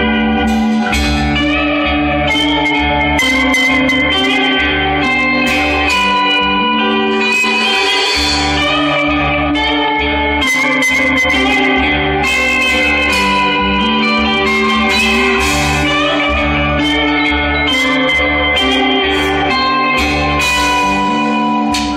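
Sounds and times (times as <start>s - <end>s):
rock band playing: 0.0s - 21.9s
cymbal hits: 0.4s - 1.8s, 5.5s - 9.1s, 12.3s - 18.0s, 18.7s - 21.9s.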